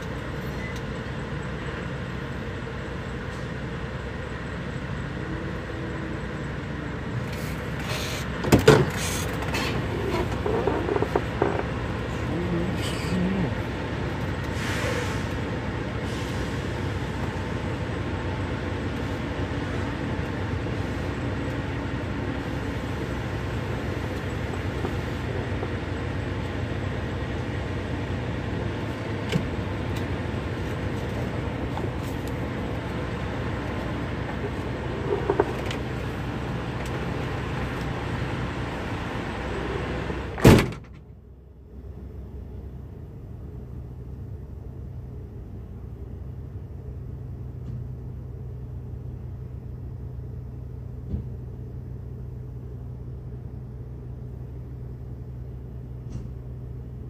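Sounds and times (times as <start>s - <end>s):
diesel truck engine idling: 0.0s - 57.0s.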